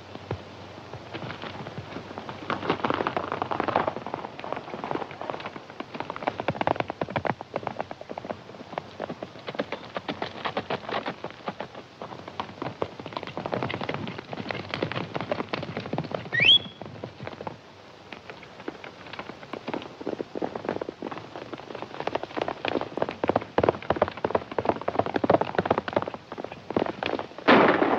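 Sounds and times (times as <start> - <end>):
horses galloping hoofbeats: 0.0 - 27.9.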